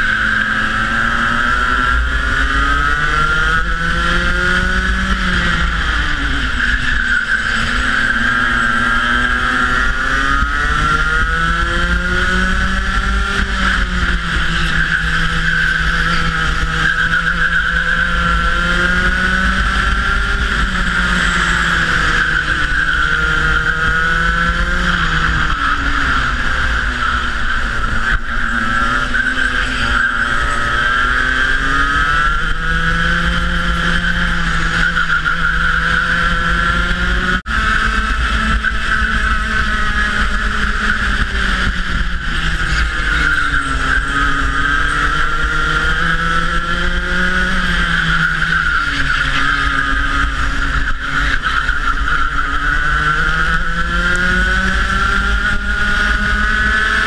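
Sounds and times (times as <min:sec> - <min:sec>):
kart engine revving: 0:00.0 - 0:57.0.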